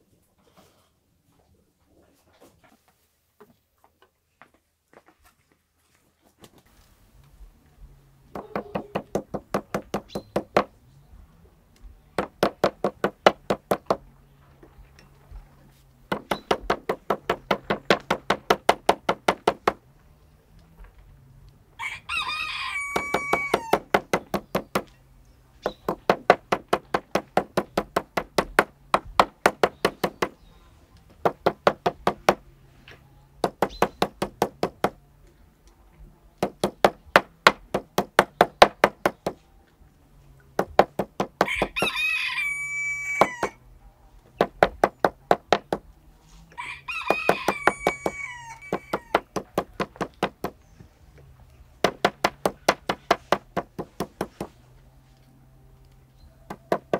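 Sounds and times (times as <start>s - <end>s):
rooster crowing: 21.8s - 24.0s, 41.4s - 43.6s, 46.5s - 49.3s
meat mallet pounding meat: 23.0s - 24.9s.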